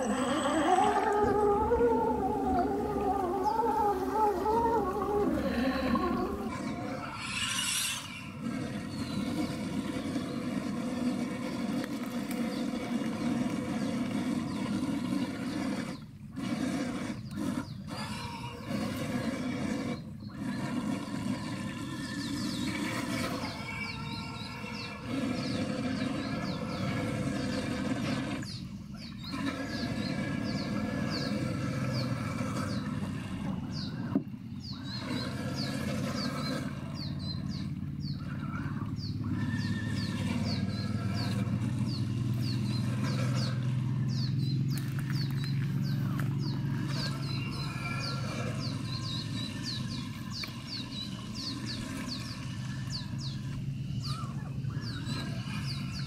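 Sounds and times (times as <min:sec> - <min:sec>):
electric motor and gears whining: 0:29.7 - 0:56.0.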